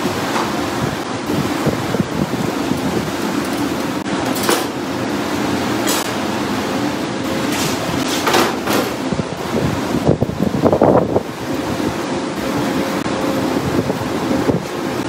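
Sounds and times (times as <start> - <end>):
wind buffeting microphone: 0.0 - 4.1, 9.0 - 15.0.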